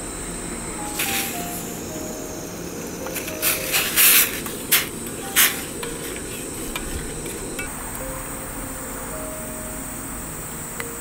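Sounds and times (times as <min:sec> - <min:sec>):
faint background music: 0:00.0 - 0:11.0
short hissing bursts: 0:00.8 - 0:07.6.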